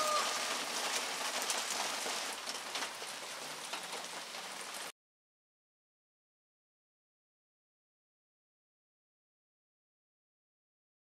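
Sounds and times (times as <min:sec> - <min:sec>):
rain falling: 0:00.0 - 0:05.0
raindrop ticks: 0:00.1 - 0:04.9.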